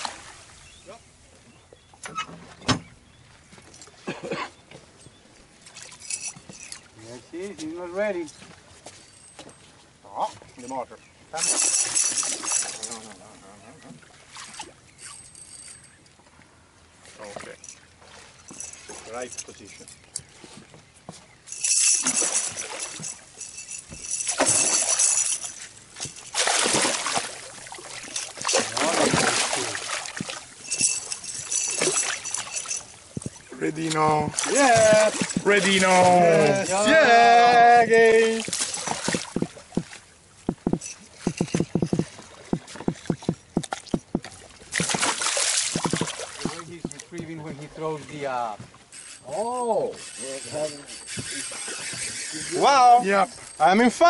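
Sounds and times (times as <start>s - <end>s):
fish splashing water: 26.1s - 33.2s, 34.4s - 35.7s, 38.4s - 46.8s
dull knocks against boat: 39.0s - 39.9s, 40.5s - 45.0s.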